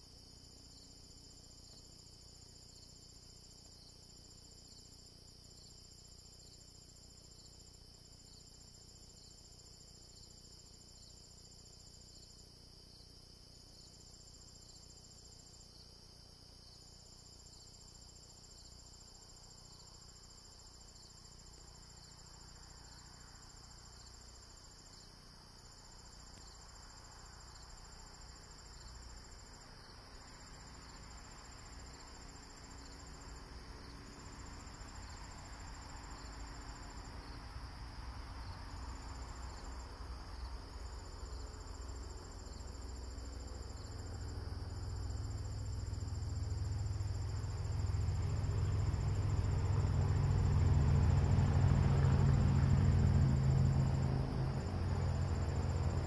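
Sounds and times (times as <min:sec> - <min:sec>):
crickets trilling: 0:00.0 - 0:56.0
higher insect trill: 0:00.0 - 0:56.0.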